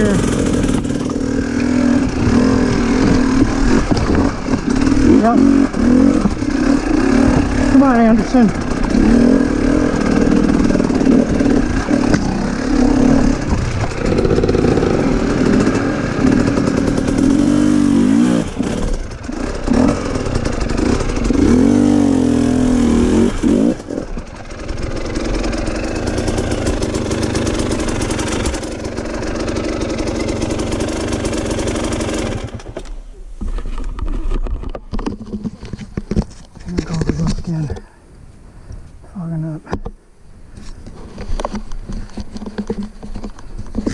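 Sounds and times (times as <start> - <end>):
dirt bike engine revving: 0.0 - 32.9.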